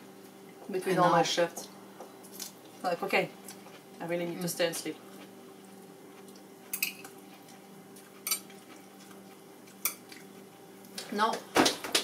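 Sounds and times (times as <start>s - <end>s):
steady low hum: 0.0s - 11.6s.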